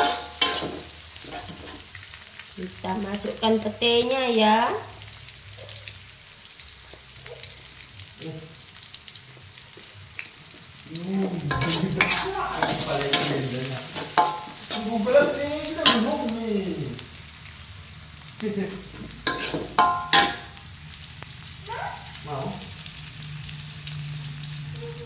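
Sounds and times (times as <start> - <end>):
metal spatula scraping steel wok: 0.0 - 2.0, 11.5 - 16.3, 18.9 - 20.6
food sizzling in oil: 0.0 - 25.0.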